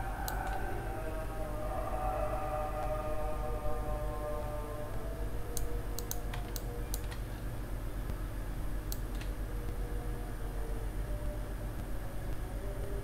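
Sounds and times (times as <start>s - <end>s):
steady low hum: 0.0s - 13.0s
computer mouse clicks: 0.2s - 0.6s, 5.6s - 7.3s, 8.9s - 9.4s.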